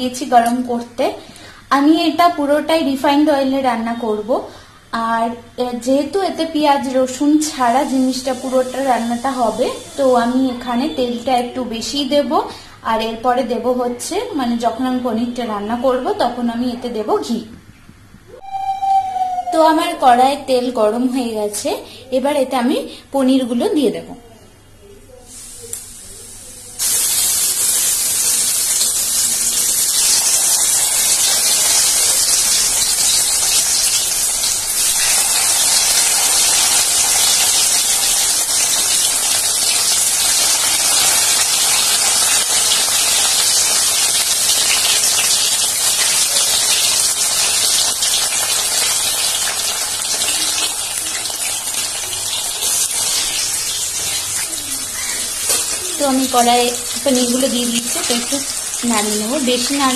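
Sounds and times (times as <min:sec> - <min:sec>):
food sizzling in hot oil: 0:05.8 - 0:12.0, 0:25.3 - 0:59.9.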